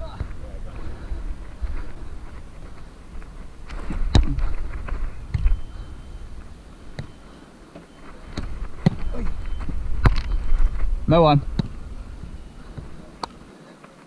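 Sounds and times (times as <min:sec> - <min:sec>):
wind rumble on microphone: 0:08.4 - 0:13.0.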